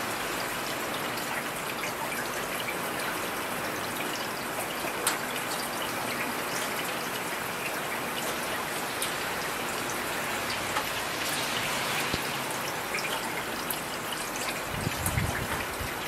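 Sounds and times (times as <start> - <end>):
heavy rain falling: 0.0 - 16.0.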